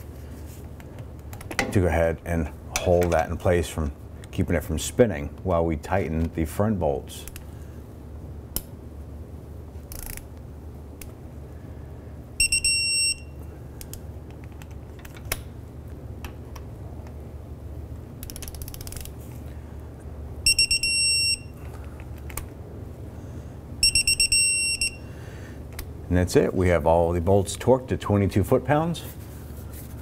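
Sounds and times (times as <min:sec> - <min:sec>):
ratchet clicks: 0:09.9 - 0:10.3, 0:18.2 - 0:19.1.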